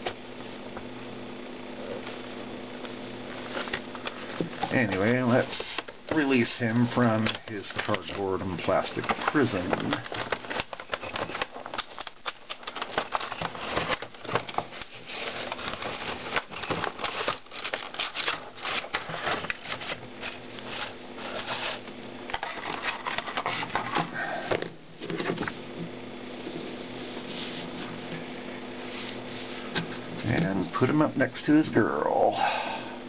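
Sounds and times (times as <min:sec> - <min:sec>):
cardboard and plastic crinkling: 0:01.8 - 0:25.8.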